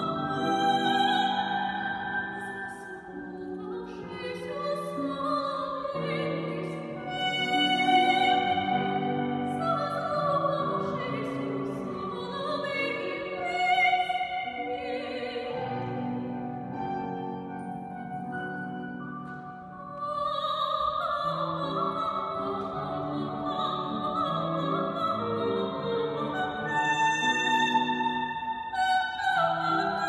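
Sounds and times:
soprano singing with vibrato: 0.0 - 16.4, 19.8 - 30.0.

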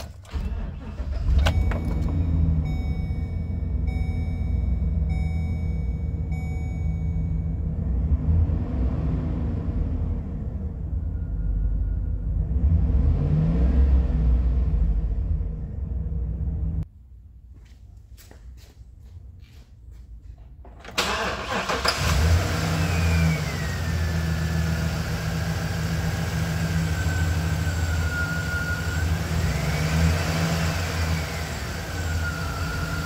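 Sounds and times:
van engine revving and idling: 0.0 - 16.9, 21.1 - 33.0
warning chime: 1.4 - 7.8.

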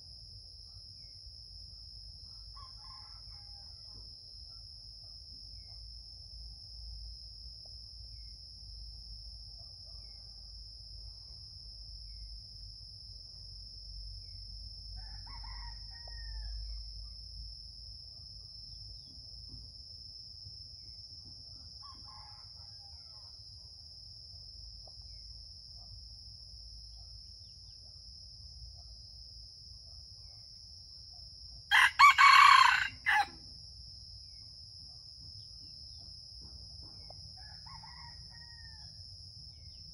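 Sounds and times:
rooster crowing: 15.0 - 16.6, 31.7 - 33.4, 37.4 - 39.0.

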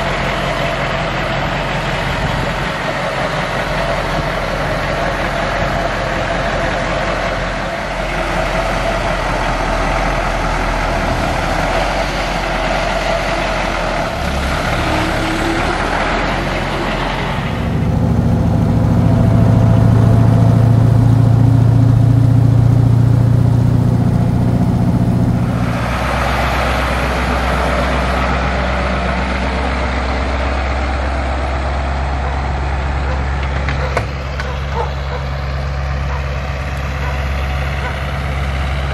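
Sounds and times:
diesel truck engine running: 0.0 - 38.9
deep engine drone inside cab: 16.9 - 38.9.

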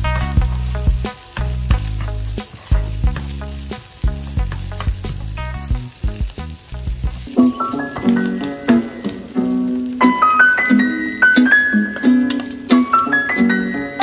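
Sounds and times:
background music: 0.0 - 14.0
paste sizzling in oil: 0.0 - 14.0
metal spoon scraping pan: 11.4 - 14.0.

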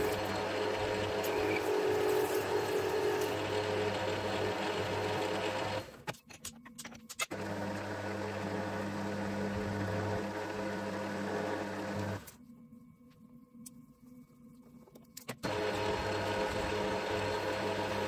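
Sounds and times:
metal lathe motor hum: 0.0 - 5.8.

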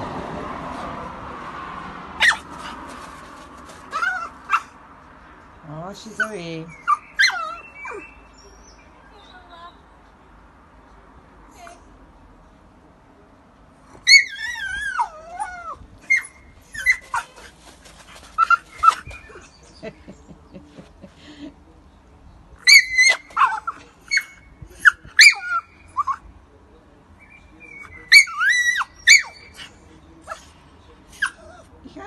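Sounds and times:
dog whining and yelping: 3.9 - 4.7, 6.8 - 8.1, 14.0 - 17.5, 22.6 - 26.2, 28.1 - 29.6.

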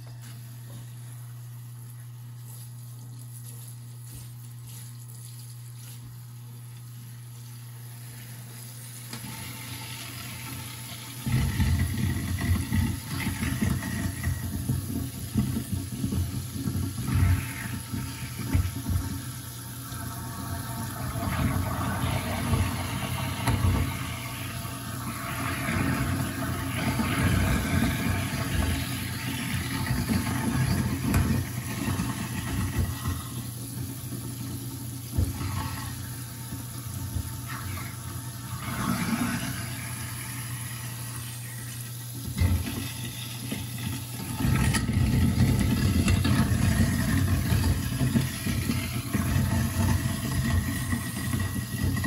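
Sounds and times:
garbage disposal motor hum: 0.0 - 52.0
water flowing: 0.0 - 52.0
rattling and knocking of food grinding: 11.2 - 19.2, 25.5 - 33.4, 42.3 - 52.0.

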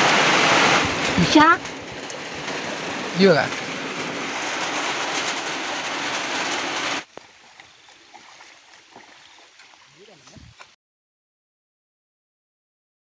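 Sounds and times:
heavy rain pouring: 0.0 - 7.5.

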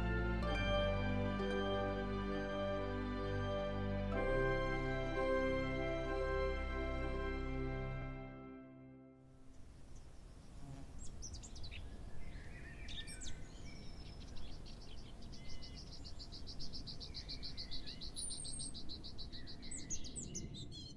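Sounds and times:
bird trill: 11.0 - 20.9
birds chirping and calling: 11.0 - 20.9.

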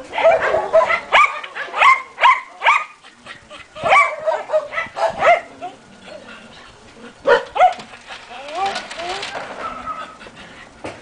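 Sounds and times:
dog barking: 0.1 - 3.0, 3.8 - 5.5, 7.3 - 7.9.

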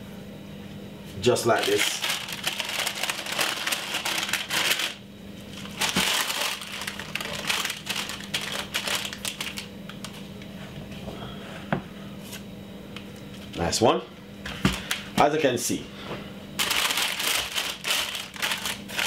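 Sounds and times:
greaseproof paper crinkling: 1.5 - 10.2, 16.6 - 19.0.

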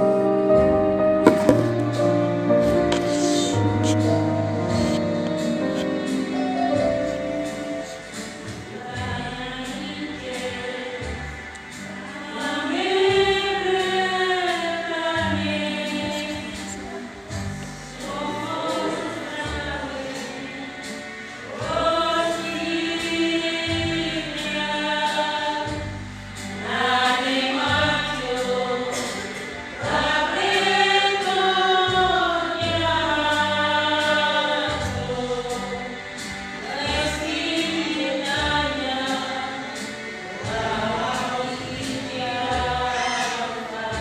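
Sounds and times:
church choir singing: 1.0 - 44.0.

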